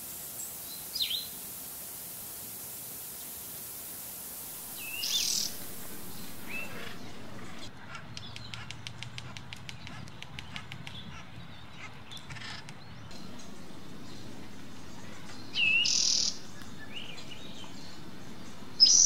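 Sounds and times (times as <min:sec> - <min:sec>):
bird calls: 0:04.5 - 0:19.0
woodpecker tapping on bark: 0:04.6 - 0:13.6.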